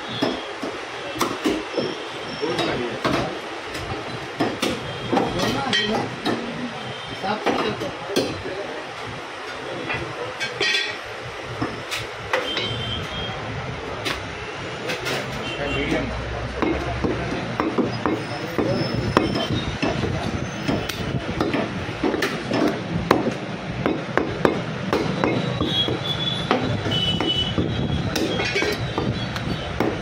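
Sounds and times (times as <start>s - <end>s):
cleaver chopping on wooden block: 16.6s - 20.1s, 20.7s - 27.4s, 28.1s - 30.0s.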